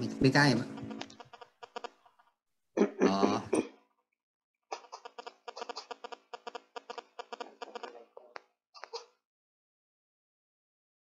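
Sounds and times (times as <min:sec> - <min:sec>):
short vocal sound: 0:02.8 - 0:03.6.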